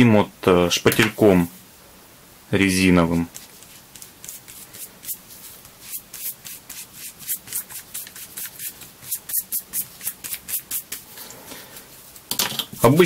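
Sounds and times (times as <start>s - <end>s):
paintbrush scrubbing leather: 3.4s - 11.1s.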